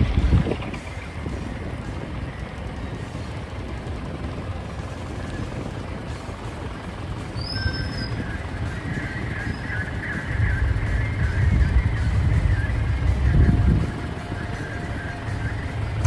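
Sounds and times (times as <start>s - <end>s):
road noise: 0.0s - 16.0s
truck engine rumble: 0.0s - 16.0s
high squeal: 7.3s - 11.9s.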